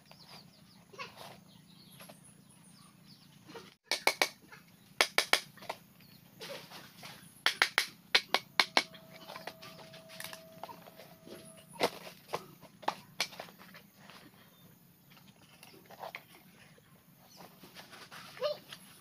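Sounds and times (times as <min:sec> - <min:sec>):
machete striking bamboo: 0:03.9 - 0:05.8, 0:07.4 - 0:09.6.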